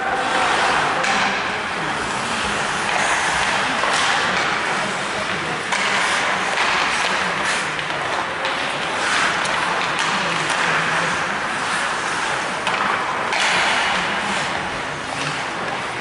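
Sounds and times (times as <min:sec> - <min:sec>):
hall background noise: 0:00.0 - 0:16.0
hockey sticks and puck clacking: 0:00.0 - 0:16.0
skates scraping on ice: 0:00.0 - 0:16.0.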